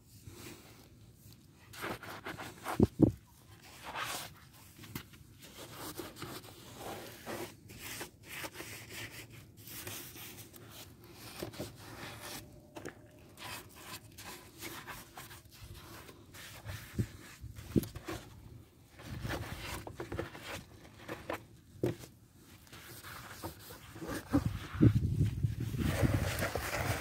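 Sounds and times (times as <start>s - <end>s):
wet scrubbing on plastic: 11.7s - 18.2s.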